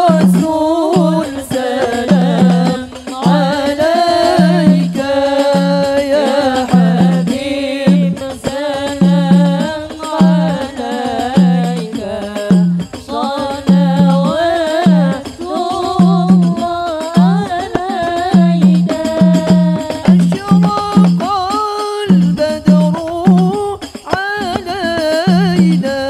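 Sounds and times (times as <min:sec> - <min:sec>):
lead voice on microphone: 0:00.0 - 0:26.0
repeating drum beat: 0:00.0 - 0:26.0
women singing devotional song: 0:00.0 - 0:26.0.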